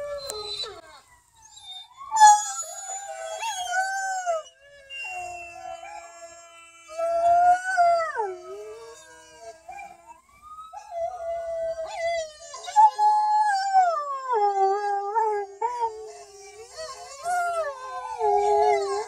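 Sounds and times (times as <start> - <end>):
recorded dog howls from video: 0.0 - 19.0
dog howling: 1.6 - 19.0.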